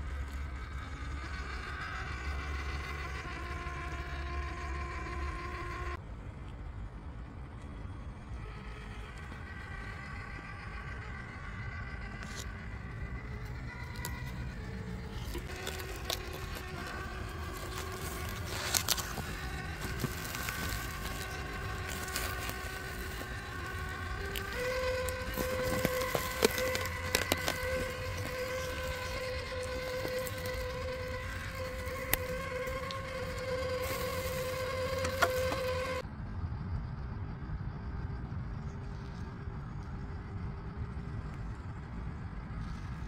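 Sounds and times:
electric motor whine: 0.0s - 36.1s, 38.6s - 43.0s
clicks and knocks over rough ground: 15.1s - 36.0s.

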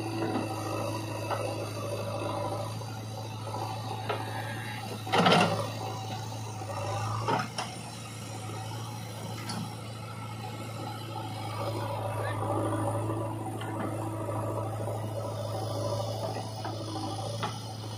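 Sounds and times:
diesel engine running: 0.0s - 17.9s.

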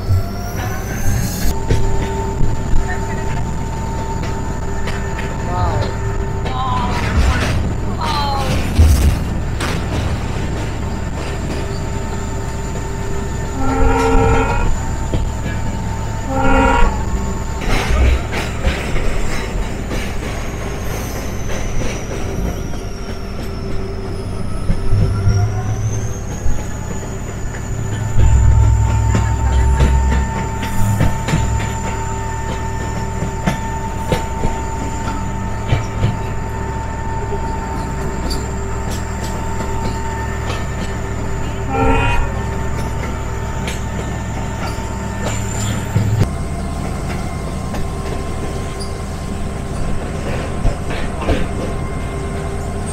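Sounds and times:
train rumble: 0.0s - 52.9s
wheels clattering over rail joints: 0.0s - 52.9s
locomotive horn blasts: 13.4s - 18.2s, 39.5s - 45.0s.

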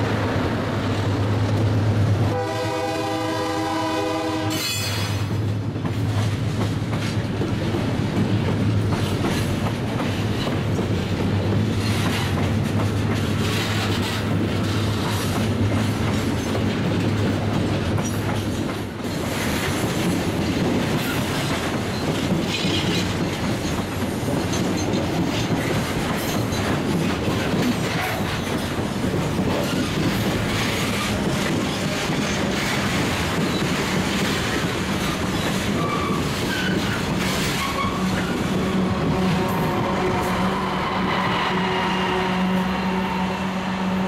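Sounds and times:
locomotive engine hum: 0.0s - 4.5s
train wheels rumbling on rails: 0.0s - 44.0s
wheel squeals: 35.0s - 38.5s.

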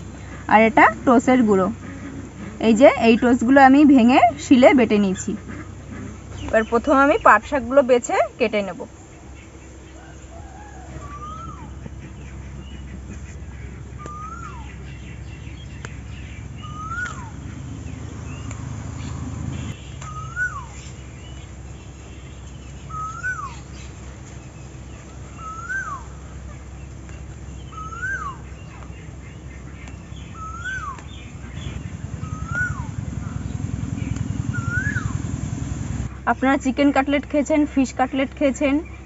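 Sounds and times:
low steady hum: 0.0s - 39.0s
bird whistled call: 10.0s - 12.0s, 14.0s - 21.3s, 22.8s - 23.9s, 25.3s - 26.2s, 27.6s - 28.8s, 30.1s - 36.1s.

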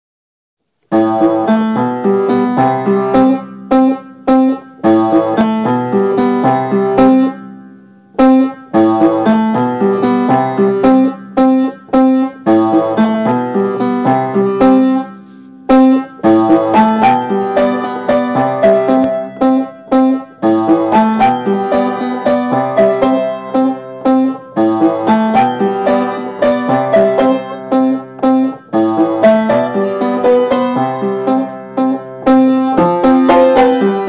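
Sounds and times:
upright piano melody: 0.9s - 34.0s.

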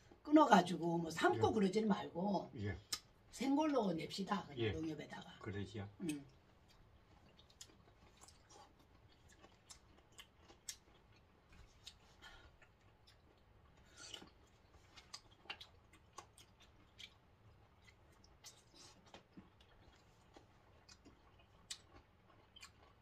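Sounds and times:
chewing: 6.0s - 23.0s.

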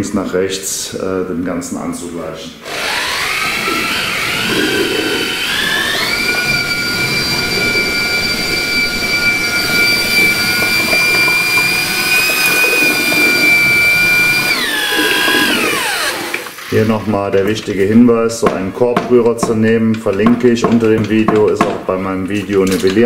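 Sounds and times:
electric paddle mixer whine: 2.6s - 17.1s.

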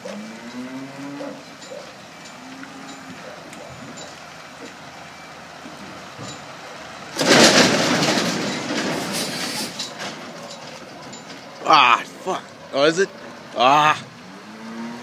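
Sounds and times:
truck reversing: 0.0s - 15.0s
air brakes hissing: 8.9s - 10.0s.

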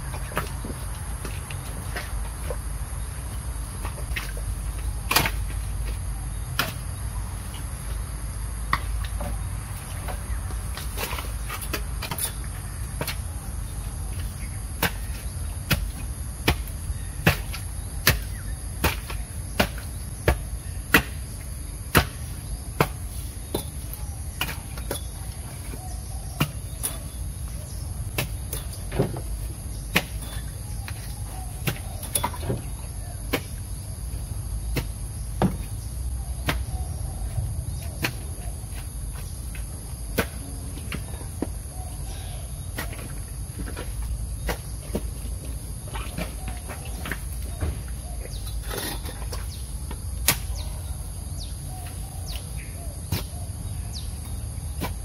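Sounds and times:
crickets droning: 0.0s - 55.0s
digging tool striking earth: 3.8s - 7.0s, 14.1s - 25.2s, 28.1s - 33.7s, 36.4s - 36.8s, 37.8s - 41.5s, 46.0s - 50.8s, 53.0s - 55.0s.

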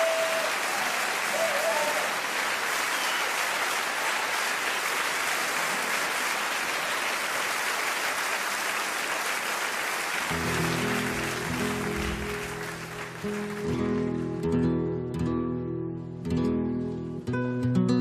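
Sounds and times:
audience applauding: 0.0s - 14.5s
flamenco guitar playing: 10.3s - 18.0s.

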